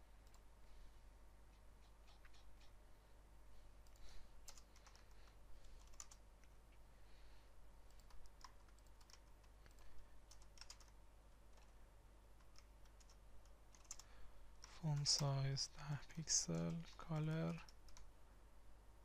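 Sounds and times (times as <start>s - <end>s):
low steady hum: 0.0s - 19.0s
faint keyboard keystrokes: 12.4s - 15.3s.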